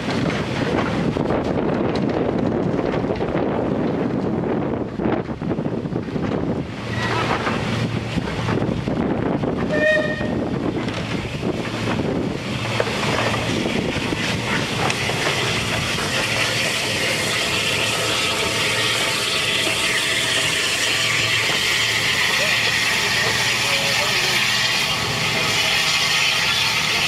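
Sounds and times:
train wheels clattering on track: 0.0 - 27.0
train whistle: 9.7 - 10.4
steam locomotive hiss: 12.5 - 27.0.

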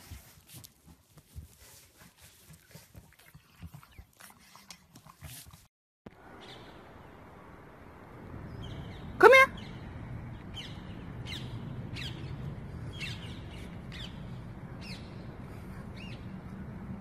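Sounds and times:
low background rumble: 6.1 - 17.0.

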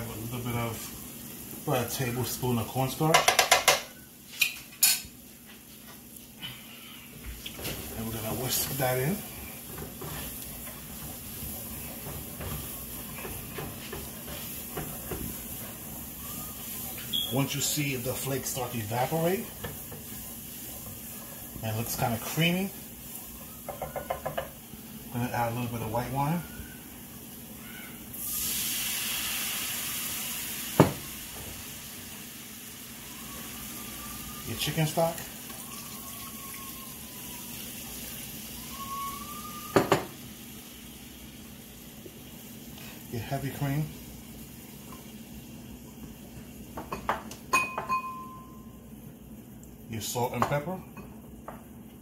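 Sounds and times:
onions sizzling in butter: 0.0 - 47.4.

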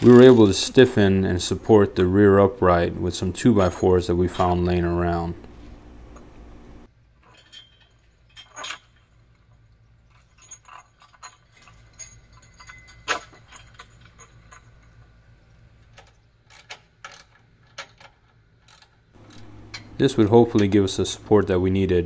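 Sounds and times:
metal tools clinking and knocking: 0.0 - 0.6, 7.2 - 15.2, 15.9 - 21.0.

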